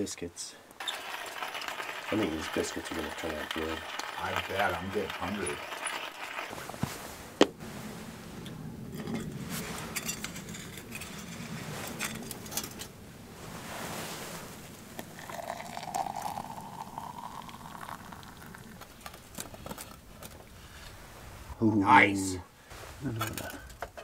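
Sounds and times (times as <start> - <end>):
faint steady rushing tone: 1.9 - 18.2.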